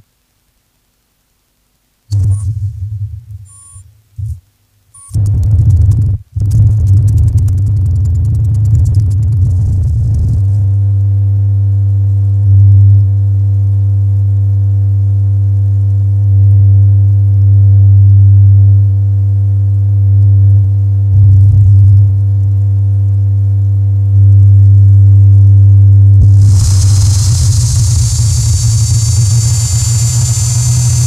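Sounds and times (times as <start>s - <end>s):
droning low hum with overtones: 0.0s - 31.0s.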